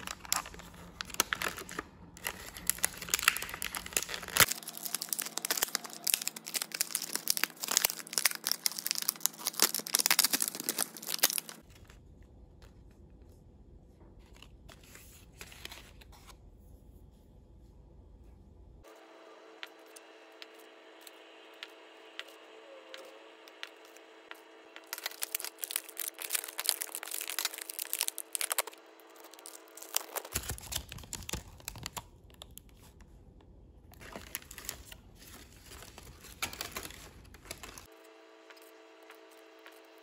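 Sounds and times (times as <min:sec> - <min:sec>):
plastic packaging crinkling: 0:00.0 - 0:11.7, 0:24.8 - 0:33.0, 0:34.0 - 0:37.9.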